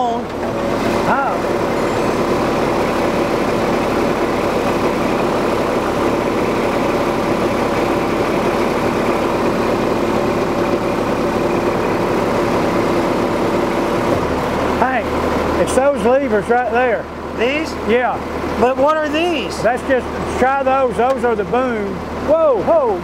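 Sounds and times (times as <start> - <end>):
constant tonal hum: 0.0 - 23.0
truck engine idling: 0.0 - 23.0.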